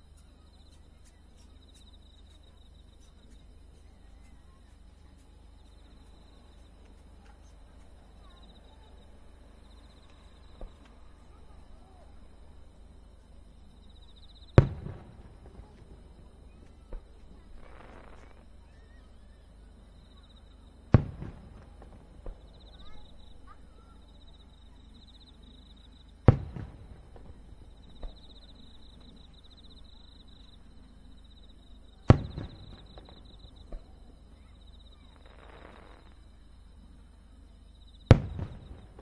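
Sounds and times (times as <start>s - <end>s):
faint firework pop: 14.5s - 18.5s, 20.9s - 23.6s, 26.3s - 29.2s, 32.0s - 34.0s, 35.1s - 36.2s, 38.1s - 39.0s
firework shells bursting: 14.5s - 18.6s, 20.9s - 23.6s, 26.2s - 29.2s, 32.0s - 34.1s, 35.1s - 36.2s, 38.1s - 39.0s.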